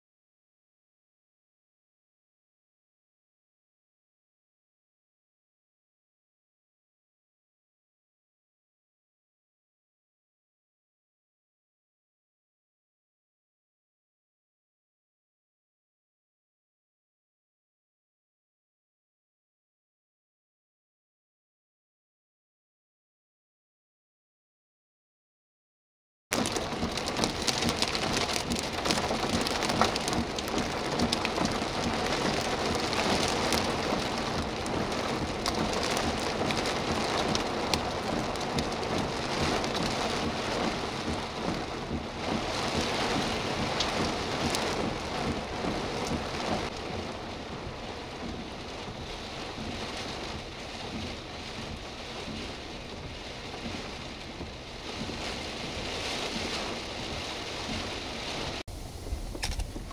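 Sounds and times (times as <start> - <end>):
heavy wind-driven rain: 26.3 - 59.9.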